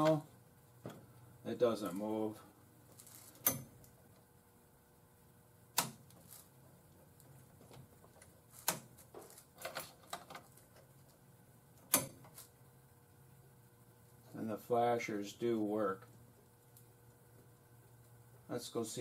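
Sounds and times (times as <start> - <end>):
sharp switch clicks: 5.7 - 6.0, 11.9 - 12.2.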